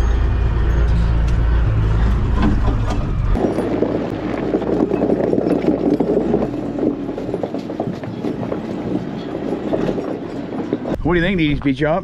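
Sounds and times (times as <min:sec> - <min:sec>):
truck engine rumble: 0:00.0 - 0:11.7
tyres rolling over snow: 0:02.1 - 0:11.0.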